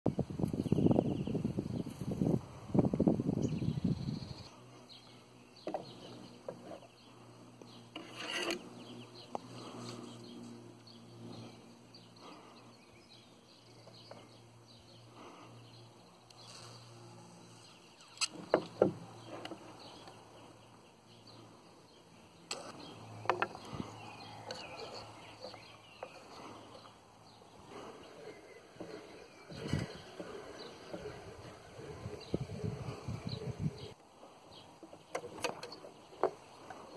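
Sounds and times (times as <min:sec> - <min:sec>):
wire scraping and rubbing: 0:07.9 - 0:08.8, 0:22.5 - 0:26.9, 0:27.6 - 0:34.0.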